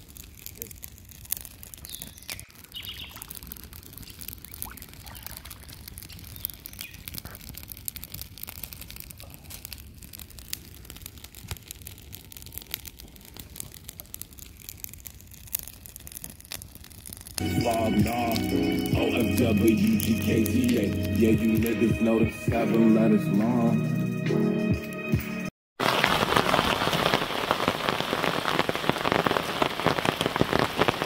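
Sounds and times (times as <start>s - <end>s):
bird chirps: 1.8s - 3.3s, 4.0s - 7.1s.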